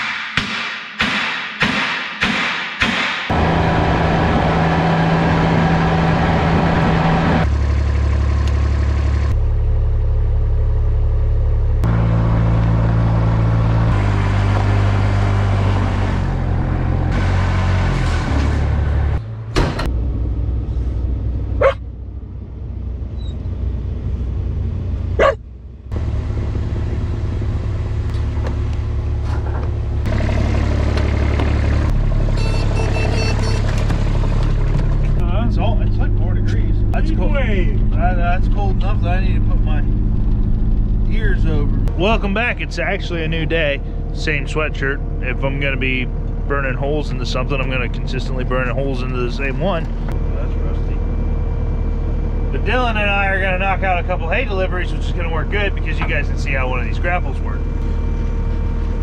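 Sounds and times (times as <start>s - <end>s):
sharp knocks: 0.0s - 3.3s
diesel vehicle engine running: 3.3s - 59.0s.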